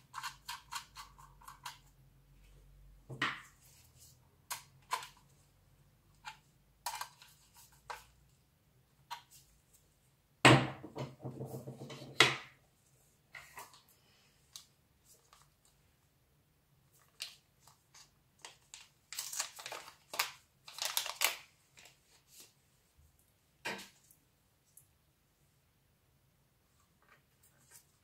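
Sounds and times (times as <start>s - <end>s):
plastic film crinkling: 16.9s - 22.5s.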